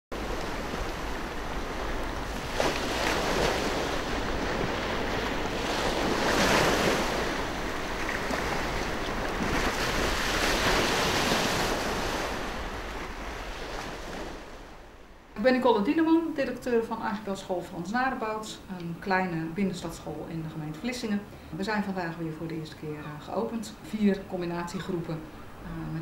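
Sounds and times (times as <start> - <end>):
sea waves washing onto shore: 0.2 - 15.4
wind rumbling on microphone: 0.2 - 15.4.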